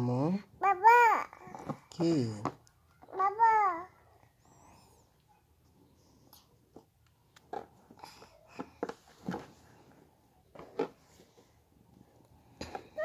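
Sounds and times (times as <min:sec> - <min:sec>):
soft handling knocks and rubs: 0:08.6 - 0:11.6.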